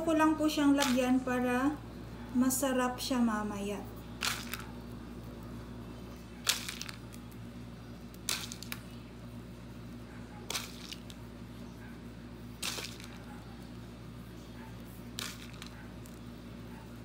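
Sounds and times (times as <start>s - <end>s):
low steady hum: 0.0s - 17.0s
peanuts rattling in plastic tub: 0.8s - 1.0s, 4.2s - 4.7s, 6.5s - 7.1s, 8.3s - 8.8s, 10.5s - 11.2s, 12.6s - 13.2s, 15.2s - 16.2s.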